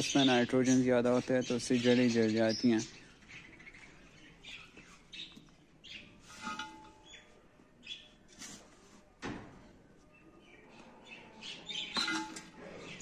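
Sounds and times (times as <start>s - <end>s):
birds chirping: 0.0s - 8.4s, 10.0s - 13.0s
spade scraping thud: 6.2s - 7.3s, 11.9s - 12.7s
metal spade digging into soil: 12.0s - 12.6s.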